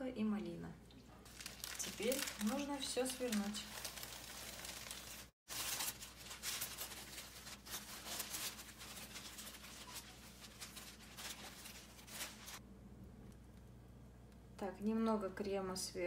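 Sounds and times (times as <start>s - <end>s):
baking paper rustling: 1.2s - 12.6s
steady low hum: 6.8s - 15.3s.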